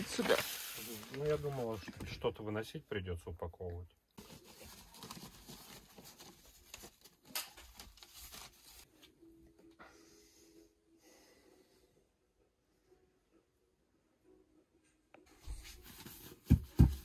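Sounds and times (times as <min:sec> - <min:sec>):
insulation rustling and tearing: 0:00.0 - 0:01.9, 0:04.2 - 0:08.9.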